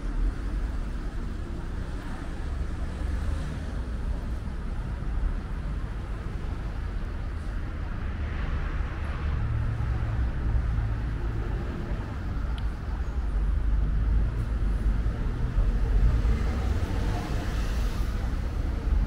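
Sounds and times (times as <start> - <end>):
street traffic rumble: 0.0 - 19.0.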